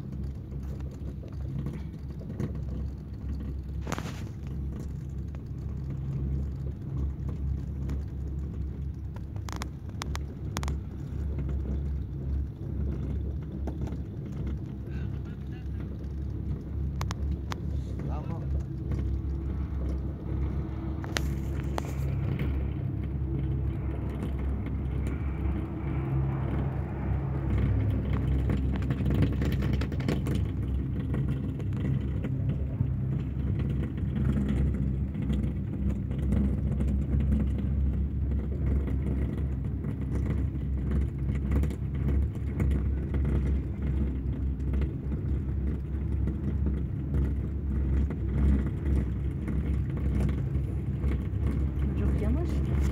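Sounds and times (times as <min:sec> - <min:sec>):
wind buffeting microphone: 0:00.0 - 0:52.9
chairlift rope hum: 0:17.5 - 0:37.4.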